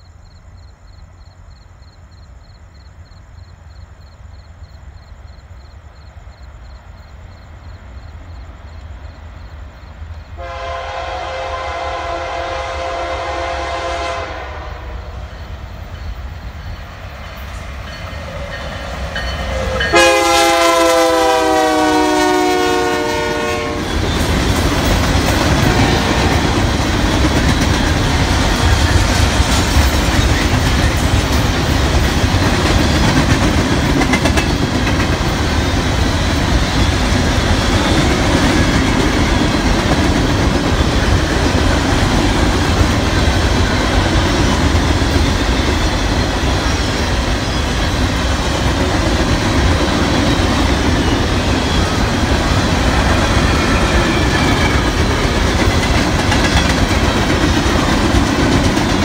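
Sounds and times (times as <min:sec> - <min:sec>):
train wheels rolling on rail: 0:03.4 - 0:59.0
locomotive horn: 0:10.4 - 0:15.2, 0:19.5 - 0:24.0.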